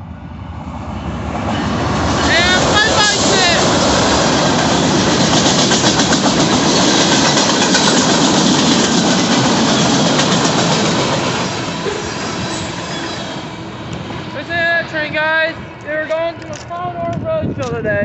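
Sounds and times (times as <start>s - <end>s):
freight train rolling past: 0.0s - 17.6s
wheels clickety-clack on rail: 1.3s - 13.2s.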